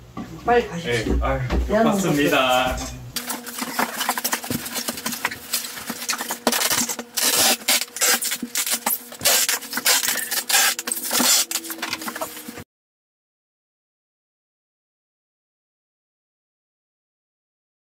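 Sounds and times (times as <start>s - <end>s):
paper and packing items handled: 3.2s - 12.6s.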